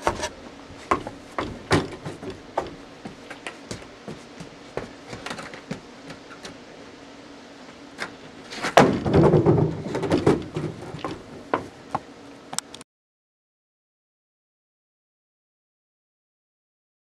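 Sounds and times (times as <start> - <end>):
footsteps on wooden deck: 0.0 - 6.6, 8.0 - 12.1.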